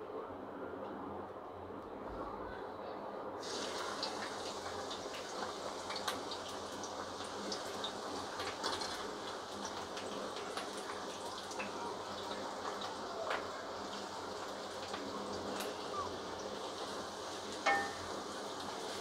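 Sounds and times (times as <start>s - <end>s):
onions sizzling in hot oil: 3.4s - 19.0s.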